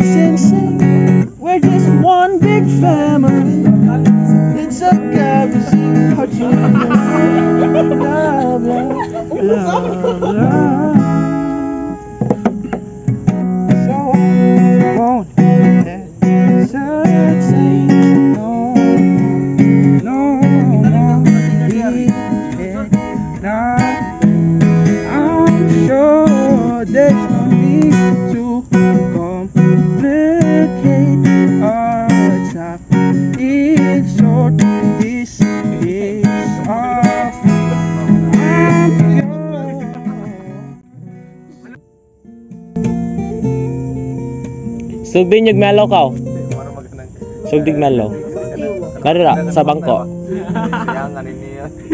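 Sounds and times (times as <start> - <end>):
person singing: 0.0 - 12.0, 13.7 - 41.8
acoustic guitar strumming: 0.0 - 51.9.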